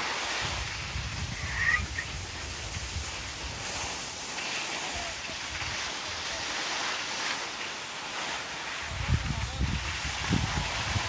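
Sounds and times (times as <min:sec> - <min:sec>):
wind buffeting microphone: 0:00.3 - 0:06.4, 0:08.7 - 0:11.0.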